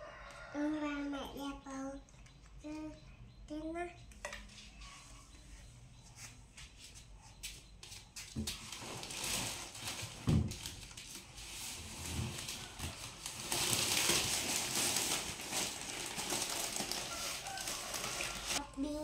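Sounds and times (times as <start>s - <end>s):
plastic and paper wrapping crinkling: 8.2s - 18.6s.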